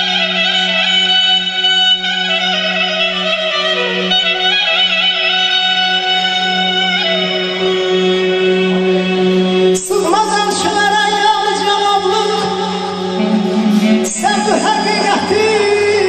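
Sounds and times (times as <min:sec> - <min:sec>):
clarinet: 0:00.0 - 0:09.9
man singing ornamented phrases: 0:09.8 - 0:16.0.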